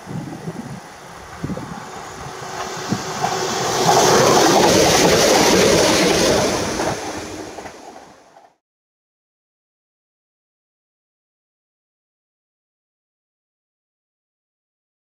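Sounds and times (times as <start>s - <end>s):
train passing at speed: 0.0s - 8.6s
sharp clicks of train wheels: 1.2s - 8.6s.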